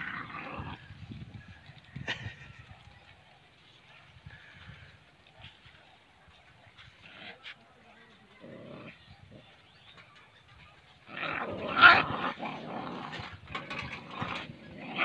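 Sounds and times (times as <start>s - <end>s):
dogs growling and snarling: 0.0s - 1.0s, 8.3s - 9.7s, 10.9s - 15.0s.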